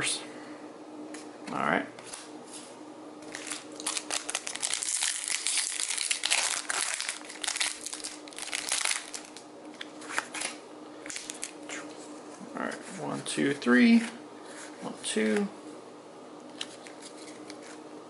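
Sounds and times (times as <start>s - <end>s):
foil wrapper tearing and crinkling: 3.2s - 11.6s.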